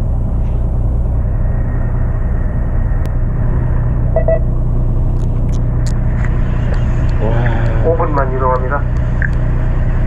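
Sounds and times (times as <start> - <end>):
boat engine humming: 0.0 - 10.0
short double beep: 4.2 - 4.5.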